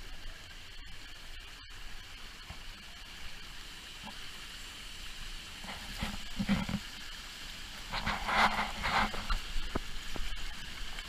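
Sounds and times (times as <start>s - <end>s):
stream rushing over rocks: 0.1s - 11.0s.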